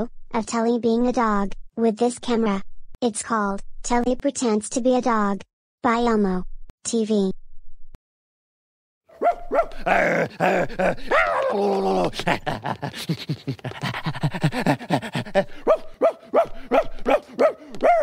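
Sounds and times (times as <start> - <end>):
puppet voice imitating dog barks: 9.2 - 12.4, 15.3 - 18.0.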